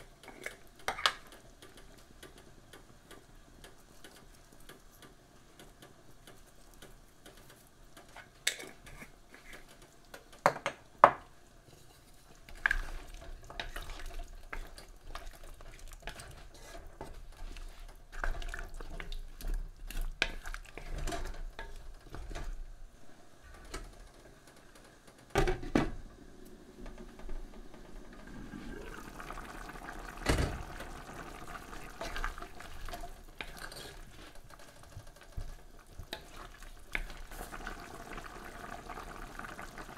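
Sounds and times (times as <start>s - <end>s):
stew sloshing and scraping: 11.6s - 22.5s, 27.8s - 38.3s.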